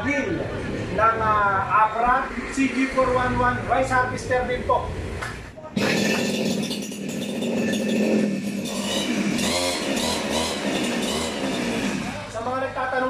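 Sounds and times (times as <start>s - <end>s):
two-stroke engine running: 5.7s - 12.5s.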